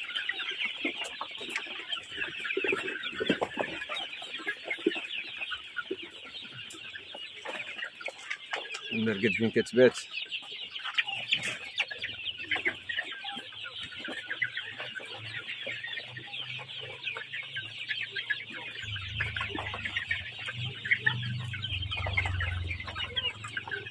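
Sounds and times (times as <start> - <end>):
young chickens clucking and calling: 0.0 - 23.9
low rumble: 18.8 - 23.7.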